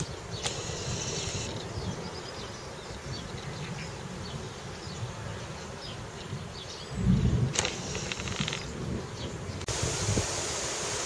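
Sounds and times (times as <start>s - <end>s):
steady hiss: 0.0s - 1.6s, 7.5s - 8.6s, 9.6s - 11.0s
faint high chirps: 0.0s - 1.7s
low wavering buzz: 0.4s - 1.5s.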